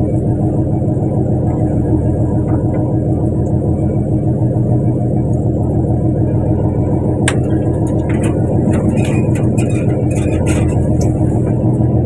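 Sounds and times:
boat engine droning: 0:00.0 - 0:12.0
sharp clicks and knocks: 0:07.2 - 0:11.3.

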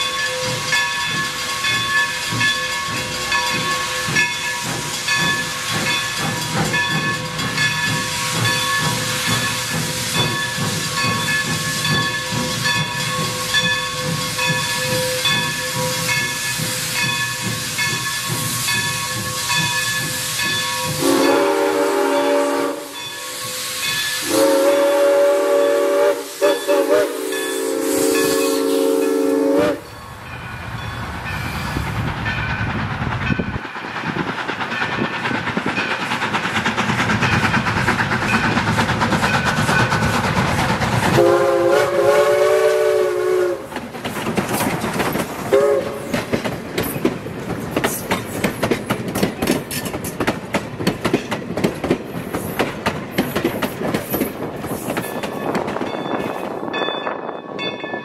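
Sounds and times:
steam locomotive hissing: 0:00.0 - 0:57.3
steam whistle blast: 0:20.8 - 0:30.0, 0:41.2 - 0:43.7, 0:45.5 - 0:46.0.

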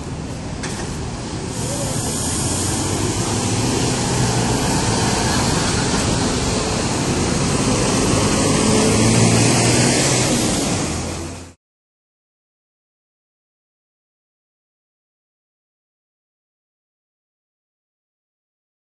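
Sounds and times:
bus engine hum: 0:00.0 - 0:11.6
bus passing by: 0:00.0 - 0:11.6
road and street noise: 0:00.0 - 0:11.6.

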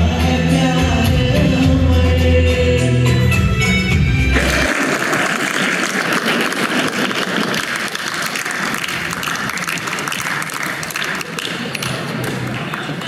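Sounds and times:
audience clapping: 0:04.4 - 0:13.0.

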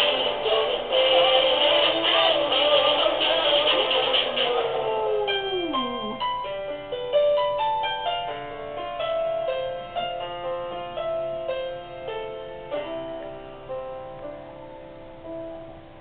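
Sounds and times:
piano notes: 0:00.0 - 0:16.0
small dog howling: 0:04.8 - 0:06.2.

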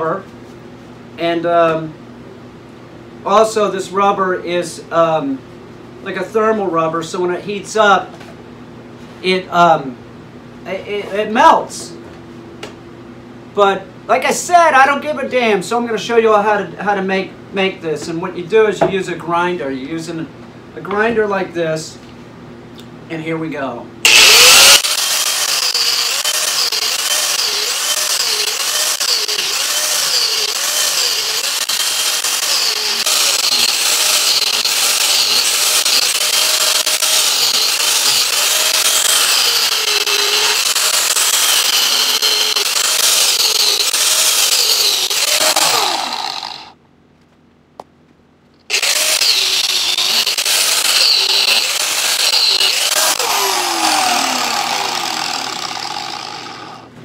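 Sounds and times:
angle grinder grinding rubber: 0:24.1 - 0:46.8, 0:48.7 - 0:56.9.

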